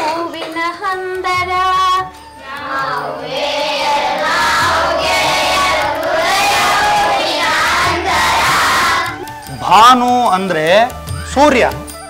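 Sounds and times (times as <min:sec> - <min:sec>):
children singing in chorus: 0:02.4 - 0:09.2.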